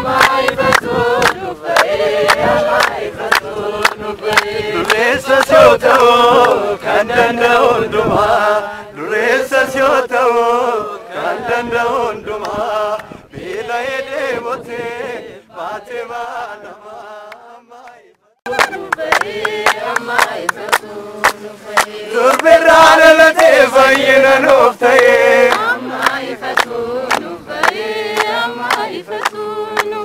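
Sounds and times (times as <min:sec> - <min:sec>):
hand clapping: 0:00.0 - 0:06.6, 0:17.3 - 0:23.6, 0:24.9 - 0:30.0
group singing a chant: 0:00.0 - 0:30.0.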